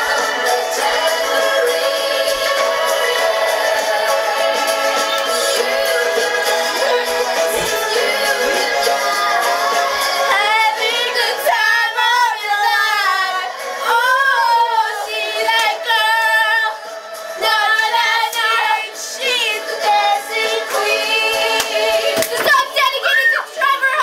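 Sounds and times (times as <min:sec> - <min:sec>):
woman singing a song: 0:06.7 - 0:16.8.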